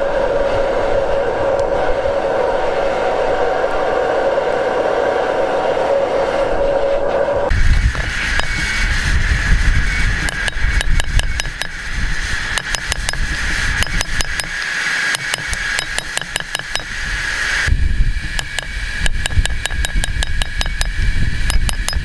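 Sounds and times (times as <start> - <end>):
hammer striking hot steel: 7.9 - 8.7, 10.2 - 11.8, 12.4 - 17.0, 18.4 - 22.0.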